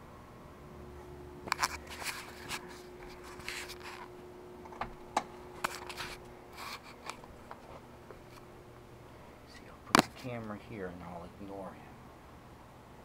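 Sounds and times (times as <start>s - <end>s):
faint steady hum: 0.0s - 13.0s
camera handling rustles and clicks: 1.5s - 4.1s, 5.6s - 8.4s, 9.9s - 10.2s.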